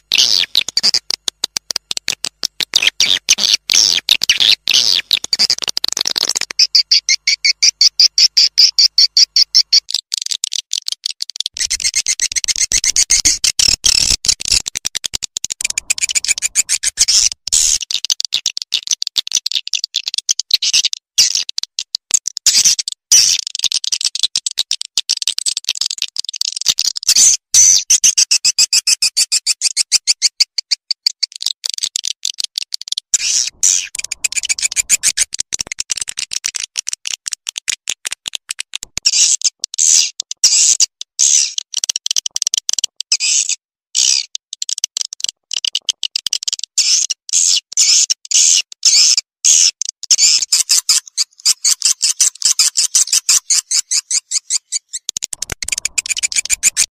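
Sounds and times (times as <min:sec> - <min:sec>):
rapid twittering of high chirps: 0:02.7 - 0:14.7, 0:15.6 - 0:17.9, 0:33.2 - 0:35.9, 0:50.1 - 0:56.9.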